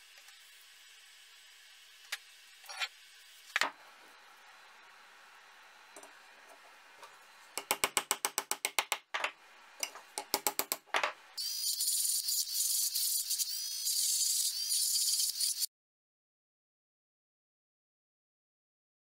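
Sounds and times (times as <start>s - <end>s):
rotary tool grinding metal: 11.4s - 15.7s.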